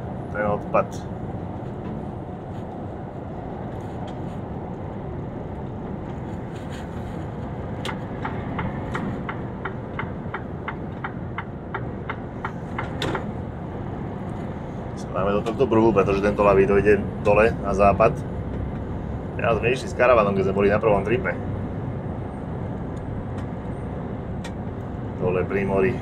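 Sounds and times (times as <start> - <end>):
truck engine and road noise: 0.0 - 26.0
turn signal ticking: 7.8 - 13.0.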